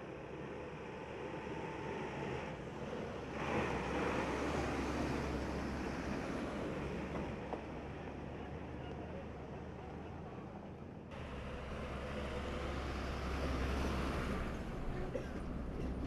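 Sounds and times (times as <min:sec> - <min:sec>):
truck driving past: 0:11.1 - 0:16.0.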